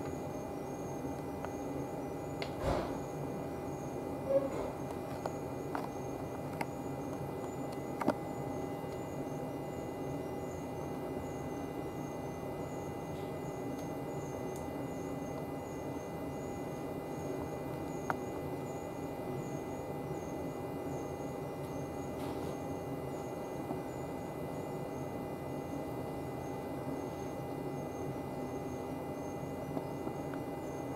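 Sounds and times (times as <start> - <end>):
train electrical hum: 0.0 - 30.9.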